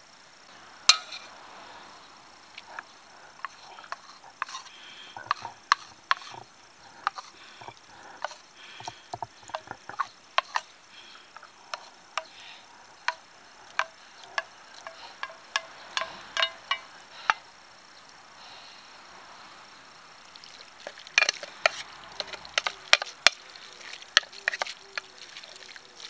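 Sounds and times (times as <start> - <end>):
wooden spoon knocking metal tin: 0.9 - 1.2, 3.4 - 10.7, 13.1 - 16.9, 21.2 - 23.5, 24.1 - 25.2.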